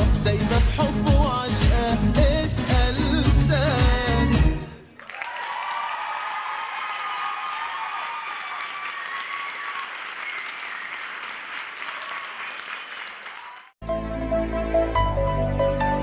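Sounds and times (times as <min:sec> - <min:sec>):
audience applauding: 0:04.8 - 0:13.8.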